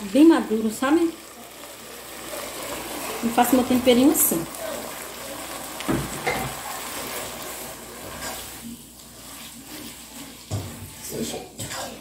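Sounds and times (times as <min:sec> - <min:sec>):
oil sizzling: 0:00.0 - 0:12.0
wooden spoon stirring spaghetti: 0:00.1 - 0:12.0
spoon knocking on pot: 0:05.8 - 0:06.5.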